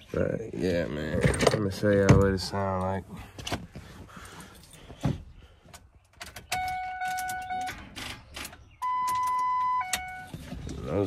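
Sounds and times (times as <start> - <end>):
vehicle electronic warning tone: 6.5 - 7.8, 8.8 - 10.5.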